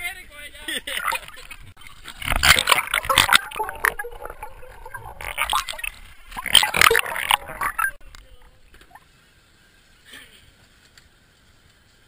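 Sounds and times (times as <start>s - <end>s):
sea water splashing and gurgling: 0.9s - 8.0s.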